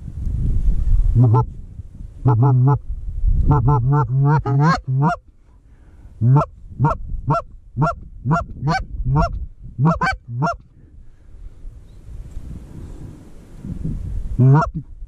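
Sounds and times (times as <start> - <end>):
goose honking: 1.2 - 1.5, 2.2 - 2.8, 3.5 - 5.2, 6.2 - 10.6, 14.4 - 14.8.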